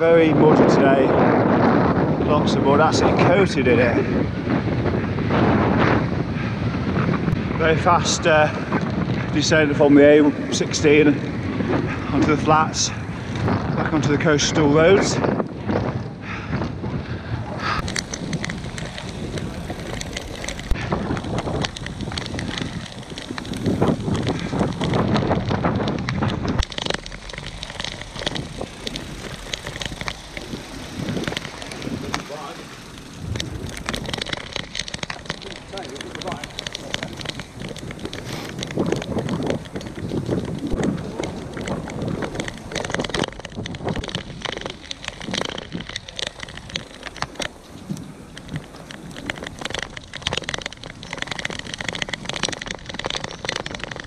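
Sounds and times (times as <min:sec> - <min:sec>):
bike rattling over rough road: 0:00.0 - 0:54.0
tyre noise on a wet path: 0:00.0 - 0:54.0
wind buffeting microphone: 0:00.0 - 0:54.0
tyres hissing on wet road: 0:27.1 - 0:33.2, 0:38.2 - 0:38.7.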